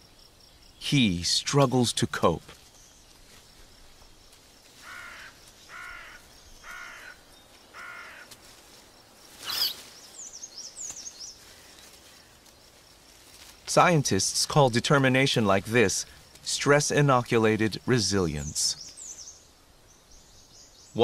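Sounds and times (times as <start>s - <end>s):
quiet forest background: 0.0s - 21.0s
small bird chirping: 9.3s - 12.4s, 17.8s - 21.0s
short animal calls: 9.4s - 9.9s.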